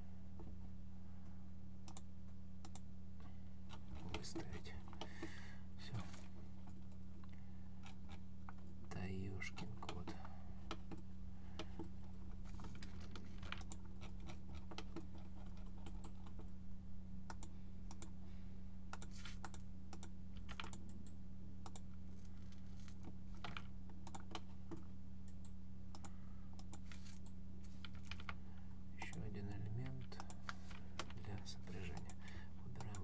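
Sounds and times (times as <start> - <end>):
low electrical hum: 0.0 - 33.0
keyboard and mouse clicks: 1.8 - 2.8, 12.5 - 16.5, 17.3 - 18.1, 18.9 - 21.9, 22.9 - 28.4.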